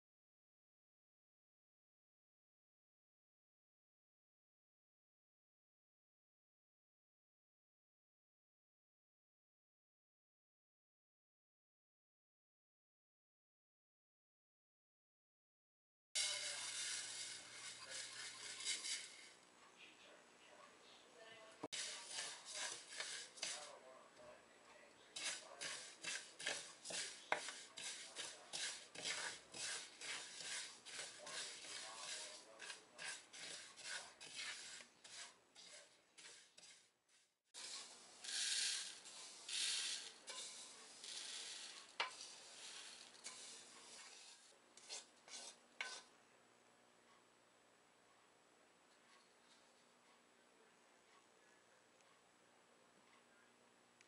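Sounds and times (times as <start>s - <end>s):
spatula scraping seeds in metal pan: 16.2s - 19.4s, 21.7s - 23.8s, 25.1s - 46.1s.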